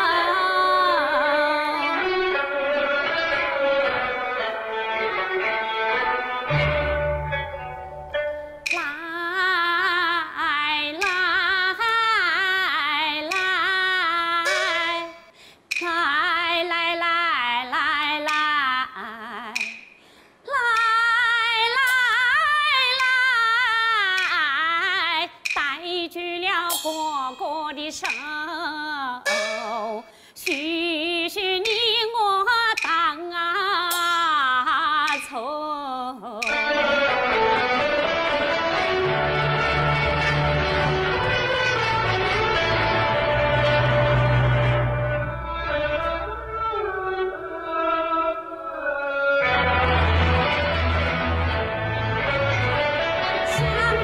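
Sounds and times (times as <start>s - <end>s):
woman singing opera with vibrato: 0.0s - 2.8s, 8.8s - 19.8s, 20.5s - 36.5s, 53.3s - 54.0s.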